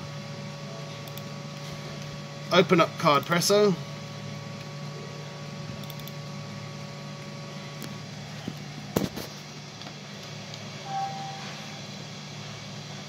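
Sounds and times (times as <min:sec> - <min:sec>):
steady low hum: 0:00.0 - 0:13.0
sharp clicks: 0:05.8 - 0:06.2
faint high steady tone: 0:10.8 - 0:11.8.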